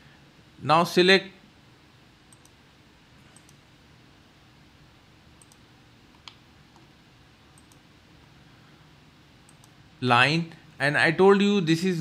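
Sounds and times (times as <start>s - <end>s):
faint low room hum: 0.0s - 12.0s
computer mouse clicks: 2.3s - 2.6s, 3.3s - 3.6s, 5.4s - 6.9s, 7.5s - 7.9s, 9.5s - 9.8s.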